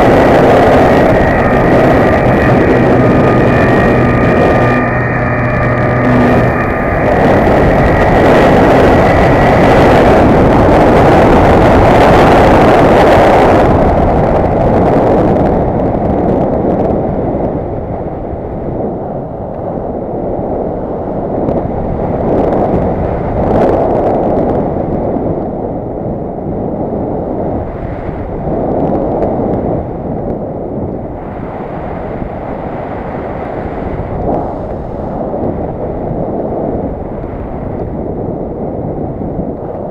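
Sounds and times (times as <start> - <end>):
propeller motor whine: 0.0 - 19.6
wind rushing over microphone: 0.0 - 39.9.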